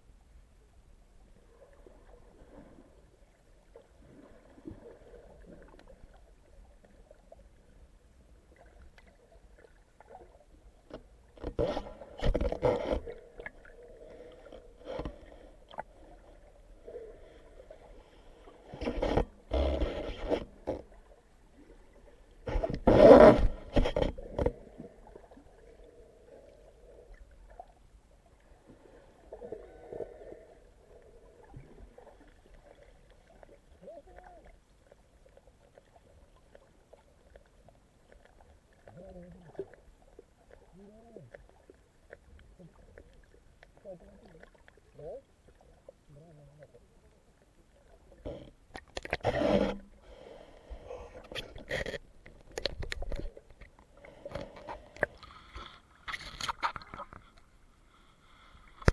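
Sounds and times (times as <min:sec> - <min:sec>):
muffled underwater noise: 0:33.7 - 0:34.6, 0:38.7 - 0:39.8, 0:40.5 - 0:48.5.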